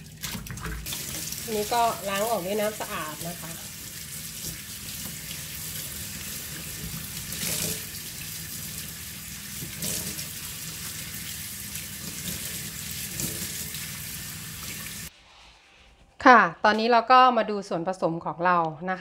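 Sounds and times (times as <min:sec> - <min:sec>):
water splashing: 0:00.0 - 0:15.1.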